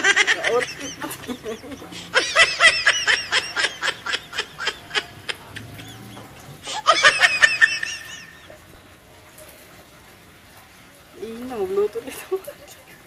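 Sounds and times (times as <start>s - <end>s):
high-pitched giggling laughter: 0.0s - 8.6s.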